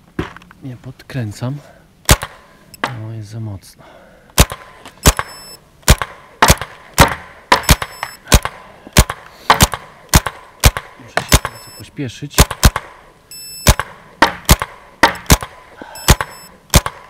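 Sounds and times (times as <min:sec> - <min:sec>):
paintball marker shots popping: 0:04.3 - 0:11.6, 0:12.4 - 0:13.0, 0:13.6 - 0:17.0.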